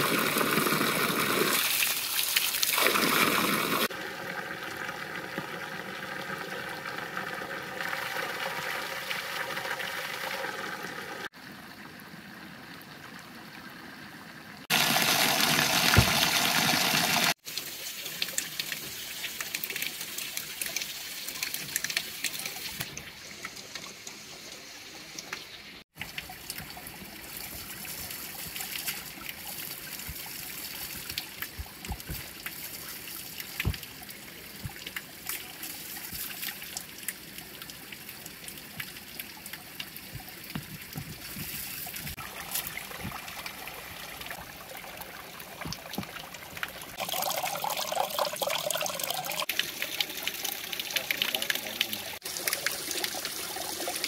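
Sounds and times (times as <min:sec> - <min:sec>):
stony stream flowing: 0:00.0 - 0:54.0
water splashing onto rocks: 0:25.9 - 0:37.5.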